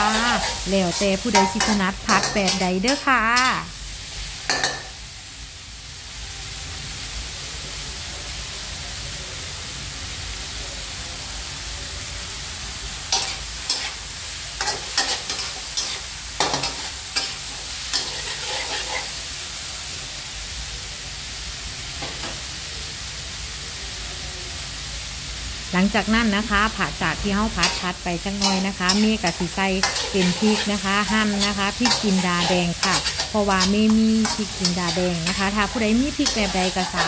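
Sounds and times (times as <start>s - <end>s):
metal spatula scraping wok: 0.0s - 3.7s, 13.1s - 14.0s, 14.6s - 19.2s, 27.6s - 37.0s
food sizzling in a wok: 0.0s - 37.0s.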